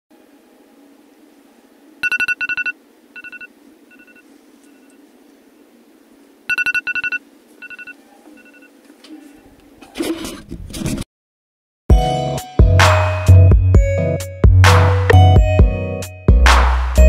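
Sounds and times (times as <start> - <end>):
electronic alarm beeping: 2.0 - 5.0, 6.5 - 8.7.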